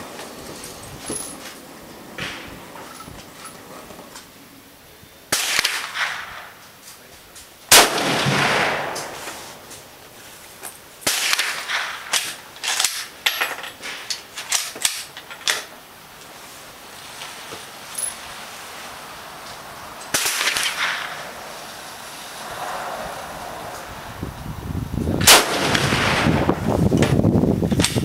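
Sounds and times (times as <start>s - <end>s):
rifle shots with echo: 5.3s - 6.6s, 7.7s - 9.6s, 11.0s - 12.4s, 25.2s - 26.7s.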